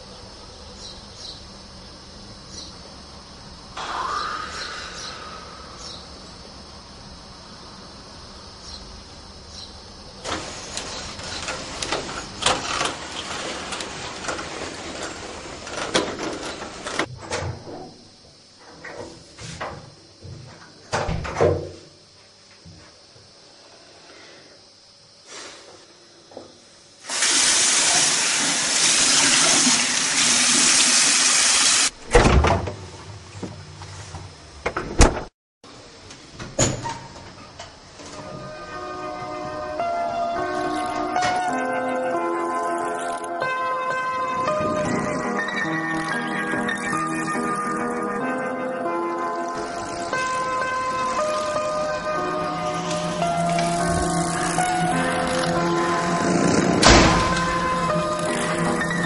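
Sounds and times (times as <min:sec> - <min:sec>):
roller shutter slats rattling: 0:10.2 - 0:17.6, 0:49.6 - 0:59.0
tap water running into basin: 0:27.1 - 0:31.9
thump: 0:56.8 - 0:57.3.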